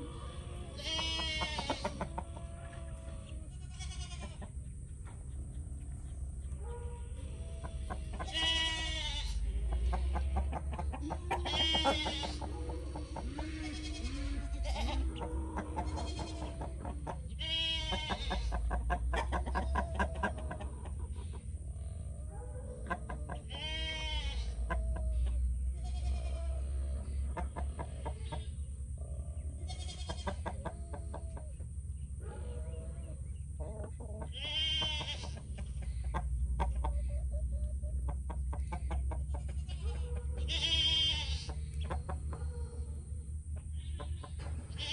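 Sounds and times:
hens clucking softly: 0.0 - 44.9
goat bleating: 0.3 - 4.5, 7.7 - 18.8, 23.4 - 24.7, 25.7 - 26.7, 29.6 - 30.5, 34.2 - 35.5, 39.4 - 41.6.

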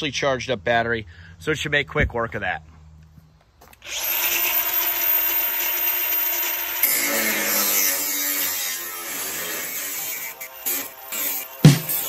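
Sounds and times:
angle grinder whining: 3.7 - 12.0
grinder grinding steel: 3.8 - 12.0.

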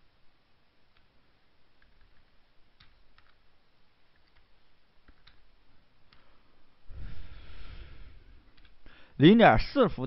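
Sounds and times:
low room noise: 0.0 - 10.0
computer keyboard typing: 1.8 - 3.4, 4.1 - 4.5, 5.1 - 5.5.

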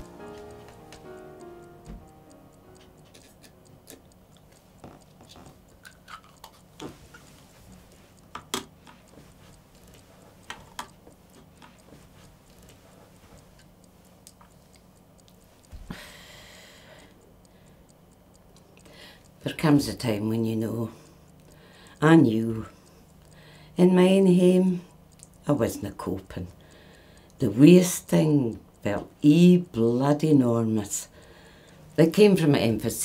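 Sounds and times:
inhaler ticks and clicks: 0.0 - 33.0
breathy hiss: 15.8 - 18.0, 18.8 - 19.3, 20.9 - 22.0, 22.7 - 23.8, 26.6 - 27.4, 31.1 - 32.0.

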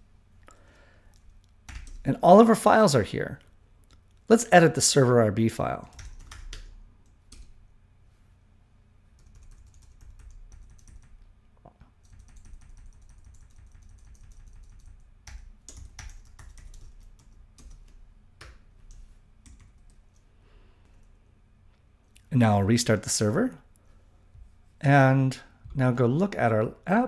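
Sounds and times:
keyboard keys clicking: 1.2 - 2.0, 9.2 - 11.2, 12.0 - 20.0.

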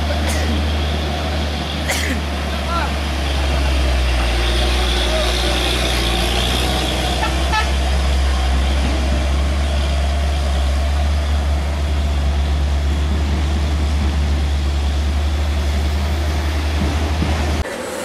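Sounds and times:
truck diesel engine rumbling: 0.0 - 18.0
truck horn toot: 3.3 - 10.6.

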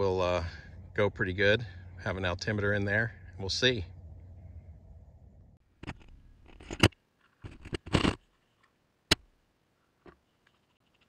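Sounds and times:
clicks and scrapes of handling: 5.8 - 8.8.

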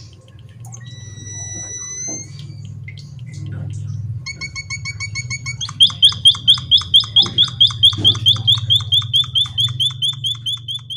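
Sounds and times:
steady low hum: 0.0 - 10.9
bird singing rapid chirps: 4.0 - 10.9.

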